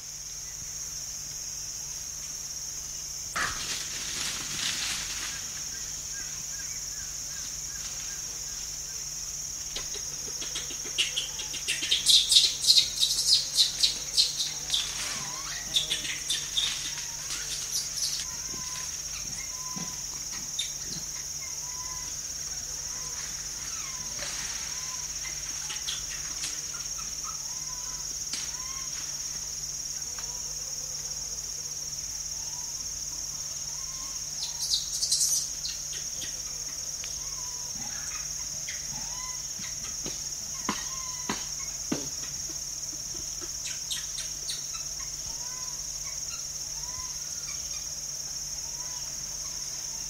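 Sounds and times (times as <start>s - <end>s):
high insect drone: 0.0s - 50.0s
young monkeys whining: 9.7s - 29.0s, 36.2s - 41.8s.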